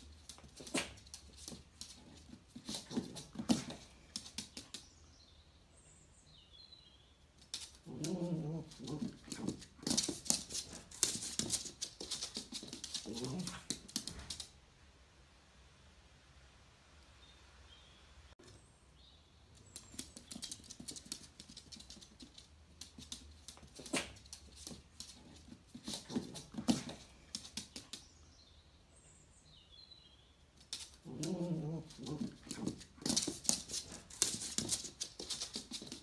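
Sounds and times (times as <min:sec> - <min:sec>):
dog claws clicking on floor: 0:00.0 - 0:04.9, 0:07.4 - 0:14.5, 0:19.7 - 0:28.0, 0:30.6 - 0:36.0.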